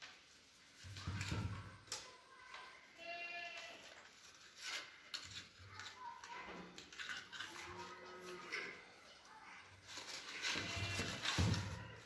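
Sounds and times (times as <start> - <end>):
packing paper crinkling: 9.8 - 12.0.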